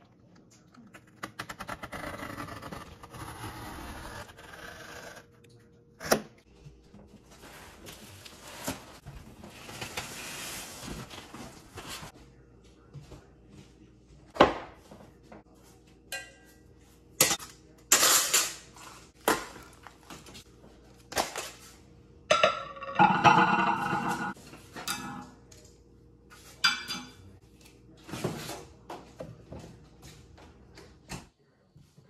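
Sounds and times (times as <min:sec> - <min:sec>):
glass tray clinking: 0:22.3 - 0:25.2.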